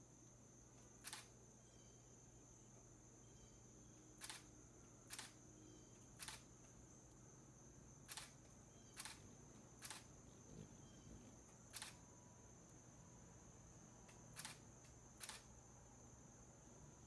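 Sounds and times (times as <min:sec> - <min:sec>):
high insect trill: 0:00.0 - 0:17.0
camera shutter clicking: 0:01.0 - 0:01.3, 0:04.2 - 0:04.5, 0:05.1 - 0:05.4, 0:06.2 - 0:06.5, 0:08.1 - 0:08.4, 0:09.0 - 0:09.2, 0:09.8 - 0:10.1, 0:11.7 - 0:12.0, 0:14.3 - 0:14.6, 0:15.2 - 0:15.5.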